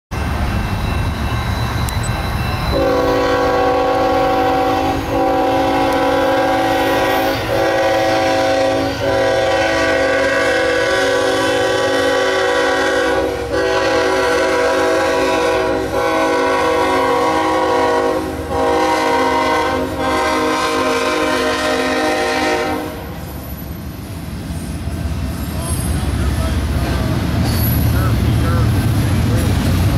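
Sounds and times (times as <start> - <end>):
train rumble: 0.1 - 29.9
locomotive air horn: 2.7 - 23.3.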